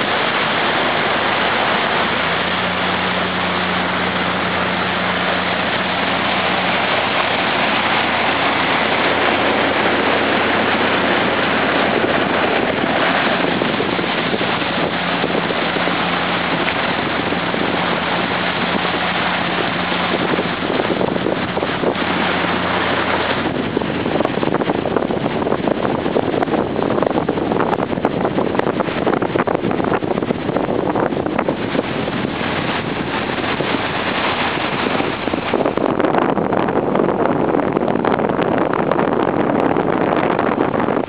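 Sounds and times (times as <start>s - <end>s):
motorboat engine hum: 0.0s - 41.0s
rushing water: 0.0s - 41.0s
wind buffeting microphone: 0.0s - 41.0s.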